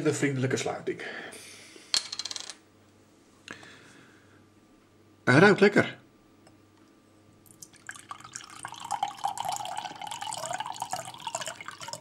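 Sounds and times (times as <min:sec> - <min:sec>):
juice pouring into a glass: 0:07.4 - 0:12.0.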